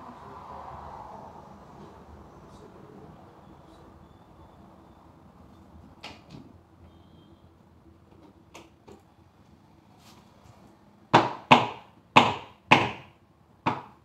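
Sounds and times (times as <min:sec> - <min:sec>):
knocks on wooden bed frame: 0:11.2 - 0:13.1.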